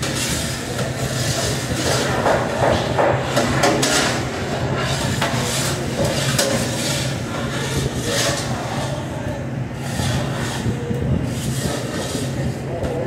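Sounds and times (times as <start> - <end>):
knocks clatters and scrapes: 0.0 - 9.1
exhaust hood fan drone: 0.0 - 13.0.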